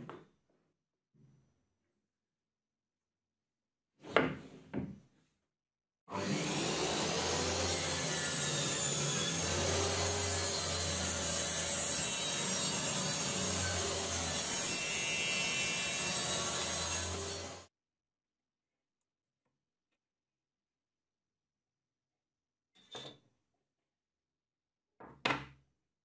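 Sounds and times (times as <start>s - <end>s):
table saw cutting plywood: 6.1s - 17.7s.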